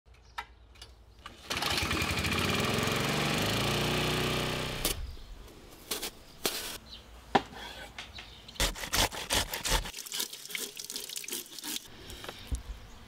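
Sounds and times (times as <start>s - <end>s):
lawn mower engine running: 1.2s - 4.9s.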